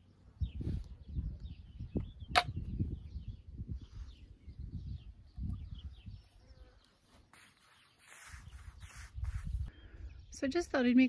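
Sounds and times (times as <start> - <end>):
small birds chirping: 0.0 - 11.0
wind buffeting microphone: 0.3 - 6.6, 8.2 - 10.4
sharp click: 2.3 - 2.6.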